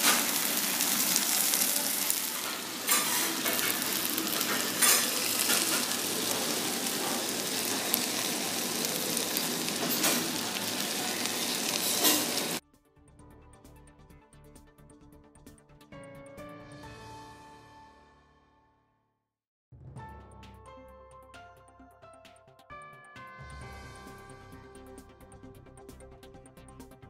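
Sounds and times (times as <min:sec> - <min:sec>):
food sizzling on a griddle: 0:00.0 - 0:12.6.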